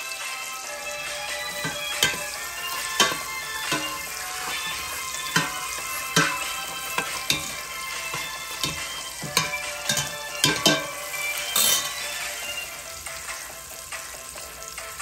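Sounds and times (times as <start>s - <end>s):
garlic sizzling in a pot: 0.0s - 15.0s
metal spoon scraping a pot: 1.3s - 12.2s.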